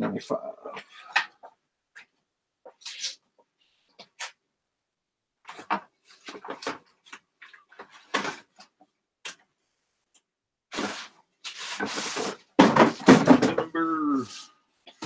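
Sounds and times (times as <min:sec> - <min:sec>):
cardboard boxes tapping and scraping: 0:11.8 - 0:13.8.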